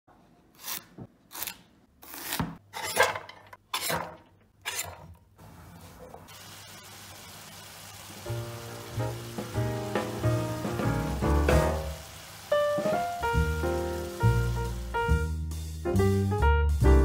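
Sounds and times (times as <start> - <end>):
vegetables sizzling in oil: 6.2 - 15.3.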